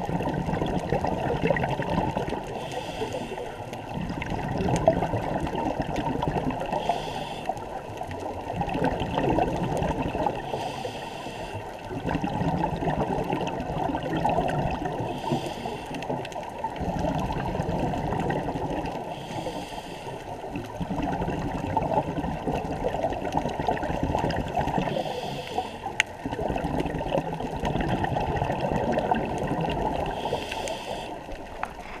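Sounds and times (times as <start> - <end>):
exhaled air bubbling: 0.0 - 32.0
regulator inhalation hiss: 2.6 - 3.6, 6.8 - 7.6, 10.4 - 11.6, 15.1 - 16.0, 19.1 - 20.3, 24.9 - 25.9, 30.1 - 31.3.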